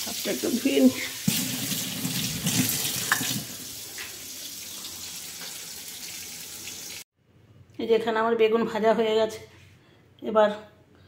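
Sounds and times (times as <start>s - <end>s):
tap water running into sink: 0.0s - 7.0s.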